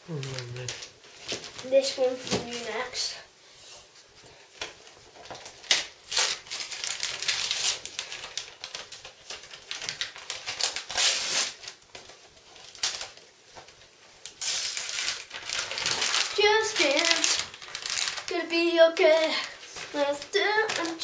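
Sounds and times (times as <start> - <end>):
wrapping paper tearing and crinkling: 0.1 - 3.1, 4.5 - 21.0.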